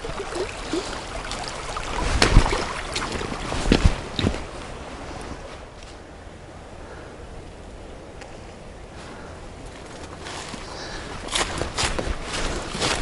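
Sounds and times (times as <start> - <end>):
creek water rushing over stones: 0.0 - 5.5, 10.1 - 13.0
footsteps on leaves and gravel: 9.8 - 13.0.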